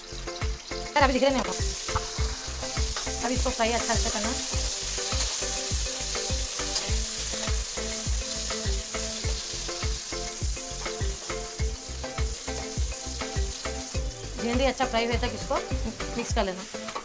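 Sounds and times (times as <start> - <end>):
okra sizzling in hot oil: 0.0 - 17.0.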